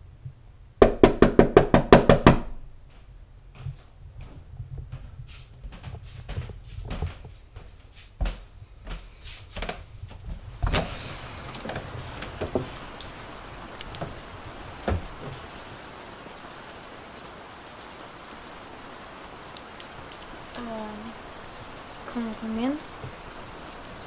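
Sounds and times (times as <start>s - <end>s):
rain hiss: 5.2s - 24.0s
wooden door opening: 10.6s - 12.8s.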